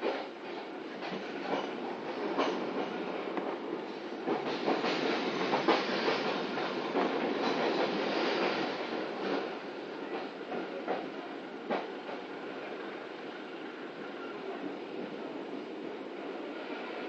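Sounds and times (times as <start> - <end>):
wheels clacking on rail joints: 0.0 - 12.3
train coach rumble: 0.0 - 17.0.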